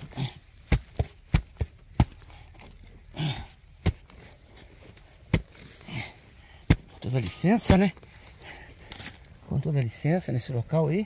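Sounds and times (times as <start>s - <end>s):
digging tool chopping into soil: 0.0s - 8.1s.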